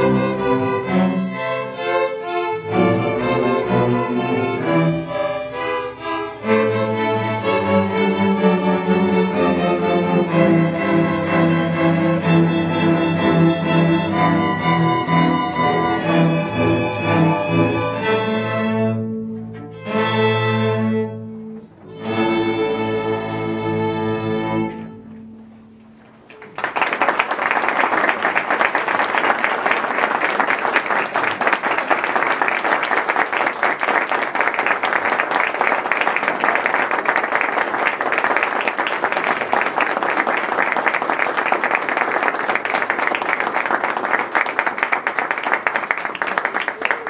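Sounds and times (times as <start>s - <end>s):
string orchestra playing chords: 0.0s - 26.2s
audience applauding: 26.2s - 47.0s.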